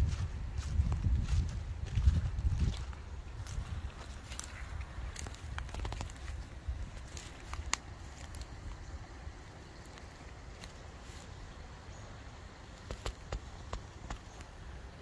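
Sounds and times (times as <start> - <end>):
wind rumble on microphone: 0.0 - 9.5
footsteps through brush: 0.0 - 11.5
twigs cracking: 2.0 - 8.9, 9.7 - 11.3, 12.7 - 14.6.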